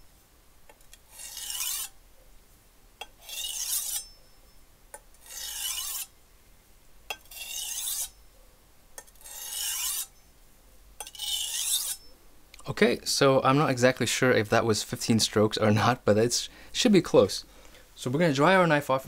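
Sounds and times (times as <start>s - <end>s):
knife rasping on whetstone: 1.0s - 1.9s, 3.0s - 4.2s, 5.2s - 6.1s, 7.2s - 8.1s, 9.2s - 10.1s, 11.0s - 12.0s.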